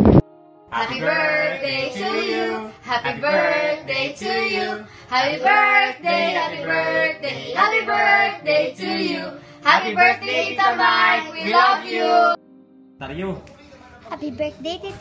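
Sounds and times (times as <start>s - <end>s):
woman and child singing: 0.8s - 12.4s.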